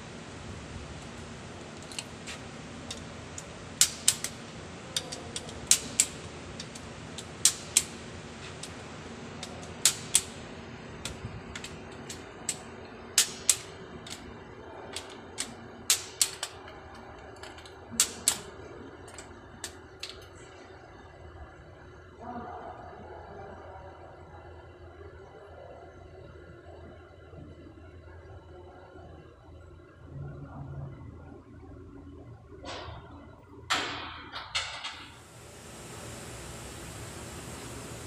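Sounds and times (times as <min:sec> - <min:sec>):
ratchet metallic clicks: 0:02.9 - 0:04.4, 0:05.0 - 0:08.0.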